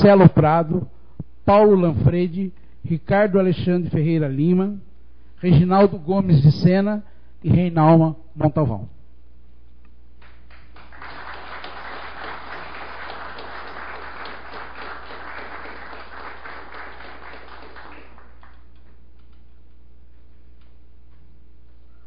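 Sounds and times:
audience applauding: 10.2s - 19.4s.

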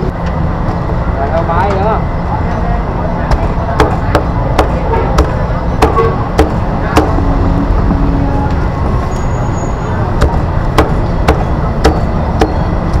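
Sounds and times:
low background rumble: 0.0s - 13.0s
cleaver chopping on wood: 3.3s - 7.2s, 10.2s - 12.6s.

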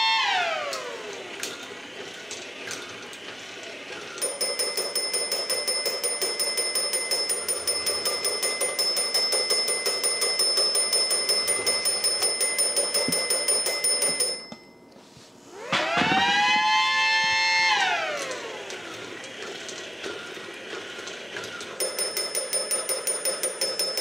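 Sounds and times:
small toy bell ringing rapidly: 4.2s - 14.8s, 21.8s - 24.0s.

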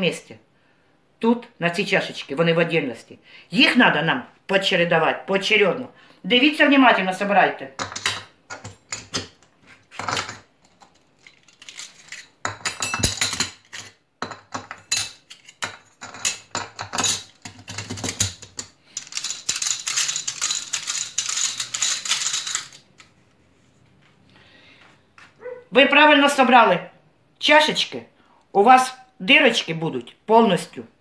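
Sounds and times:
metal discs clinking: 10.0s - 23.0s.

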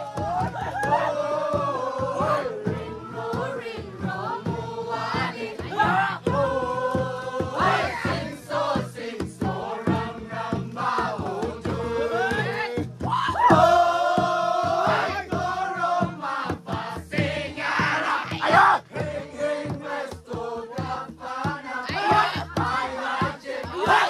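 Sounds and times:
loud whooping cries: 0.0s - 2.6s, 12.1s - 13.9s
men chanting and singing: 0.0s - 24.0s.

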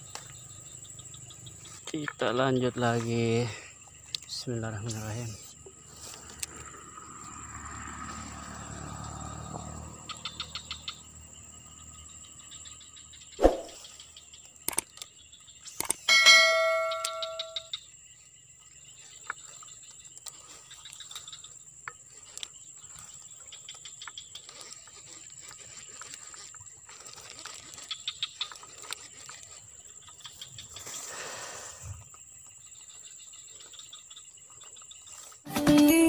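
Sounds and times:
insects trilling: 0.0s - 36.0s
brief swish: 13.4s - 13.8s.

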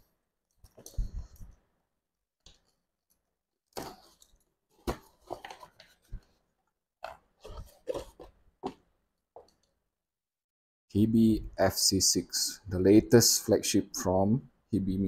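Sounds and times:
cardboard crinkling and scraping: 3.8s - 8.8s.

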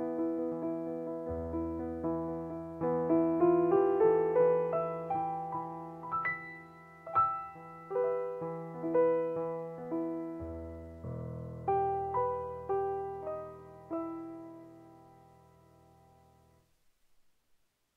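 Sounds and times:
digital piano repeated notes: 0.0s - 16.4s.

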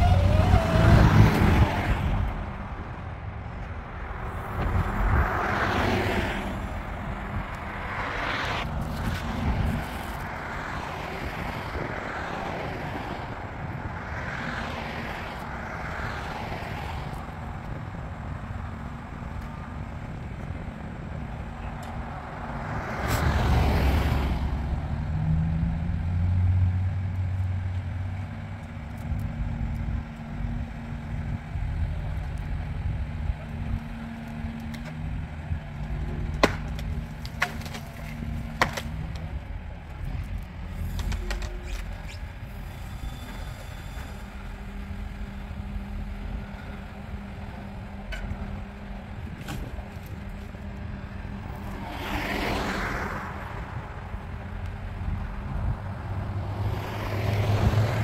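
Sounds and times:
diesel engine under hydraulic load: 0.0s - 58.0s
sharp wood cracks: 36.2s - 39.3s.

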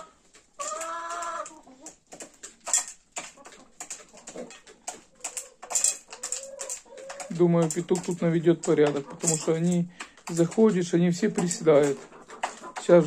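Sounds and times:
beaks pecking feed: 0.0s - 13.0s.

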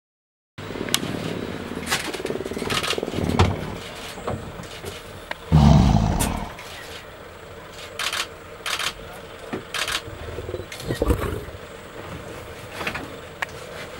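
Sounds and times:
lion deep grunt: 5.5s - 6.7s
lion growling: 5.5s - 6.7s.

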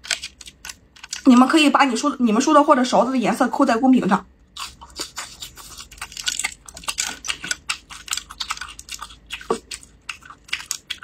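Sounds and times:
chewing noodles: 4.5s - 11.0s.

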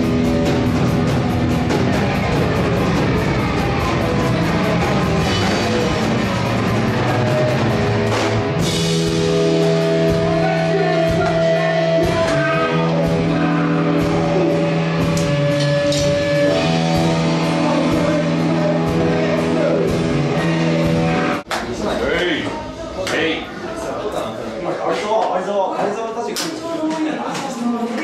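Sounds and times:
rock song with singer: 0.0s - 21.5s.

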